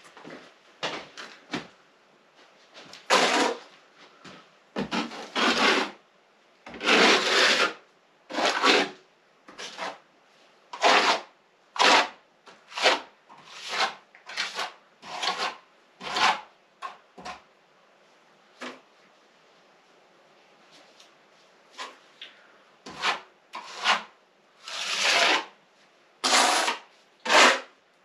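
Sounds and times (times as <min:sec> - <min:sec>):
plastering tool scraping plaster: 0:02.9 - 0:03.7, 0:04.8 - 0:06.0, 0:06.7 - 0:10.0, 0:10.7 - 0:17.5, 0:22.8 - 0:25.6, 0:26.2 - 0:27.7.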